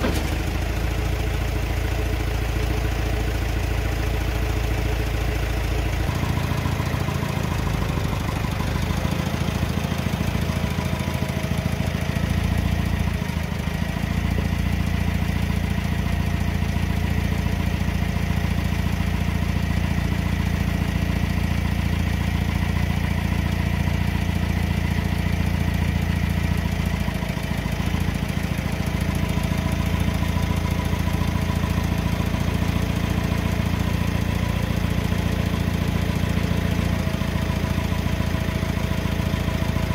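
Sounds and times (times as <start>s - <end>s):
machine engine running: 0.0s - 17.3s.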